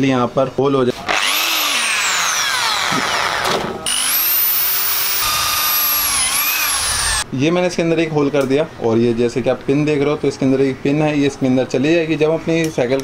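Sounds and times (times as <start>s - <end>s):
electric drill boring metal tube: 1.1s - 7.2s.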